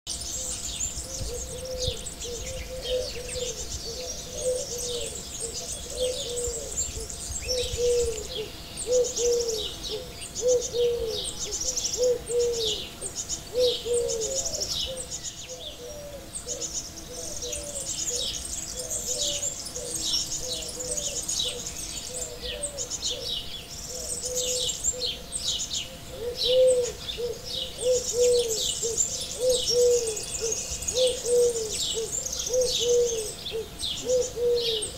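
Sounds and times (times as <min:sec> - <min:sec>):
small birds chirping: 0:00.1 - 0:34.9
low hooting call: 0:23.9 - 0:34.9.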